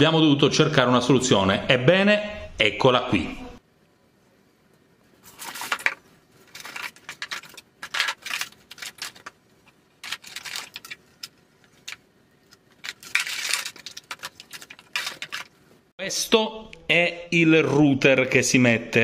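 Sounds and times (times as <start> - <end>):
cardboard packaging rustling: 5.2 - 15.9.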